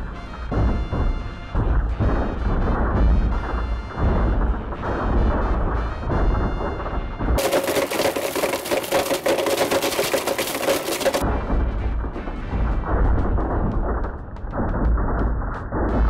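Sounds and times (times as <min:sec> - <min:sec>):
music: 0:00.0 - 0:07.4, 0:11.2 - 0:16.0
fragments rattling in blender jars: 0:07.4 - 0:11.2.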